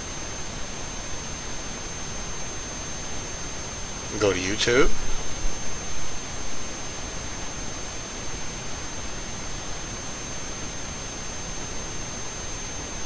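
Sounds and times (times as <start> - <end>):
faint high-pitched whine: 0.0 - 13.0
recording hiss: 4.0 - 6.6.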